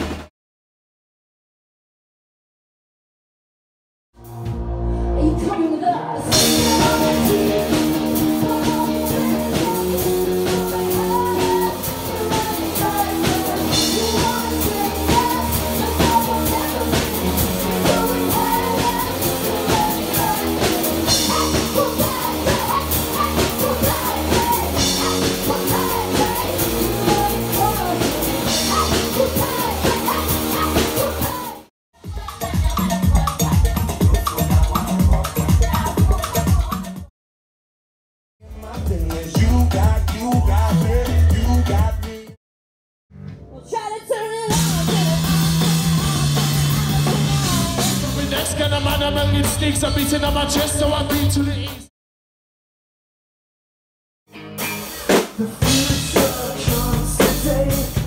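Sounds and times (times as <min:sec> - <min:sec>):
drum kit: 0:00.0 - 0:00.3, 0:04.2 - 0:04.9, 0:06.2 - 0:37.1, 0:38.4 - 0:42.4, 0:44.4 - 0:51.9, 0:54.4 - 0:58.0
rock band playing: 0:04.2 - 0:05.5, 0:06.2 - 0:36.9, 0:44.4 - 0:51.8, 0:54.3 - 0:58.0
woman singing: 0:05.2 - 0:34.2, 0:43.5 - 0:48.2.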